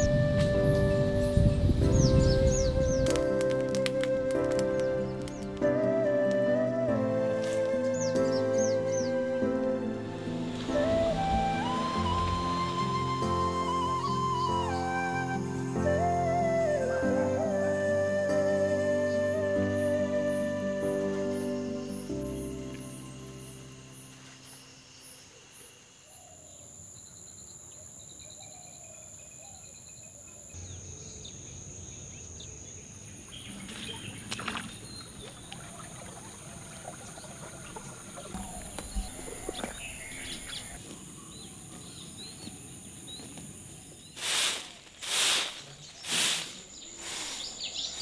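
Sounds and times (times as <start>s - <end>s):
insects trilling: 21.0s - 48.0s
bird calls: 32.2s - 48.0s
broom sweeping sandy ground: 44.0s - 48.0s.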